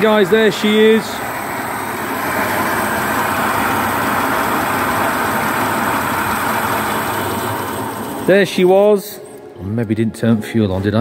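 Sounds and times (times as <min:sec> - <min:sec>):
car engine ticking over: 0:00.0 - 0:08.4.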